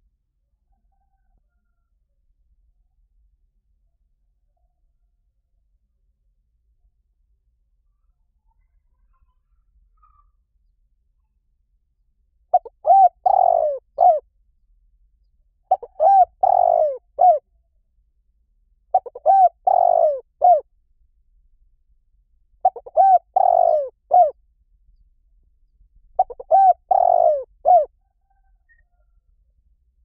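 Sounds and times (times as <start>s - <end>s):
dove cooing: 12.5s - 14.2s, 15.7s - 17.4s, 18.9s - 20.6s, 22.6s - 24.4s, 26.2s - 28.0s.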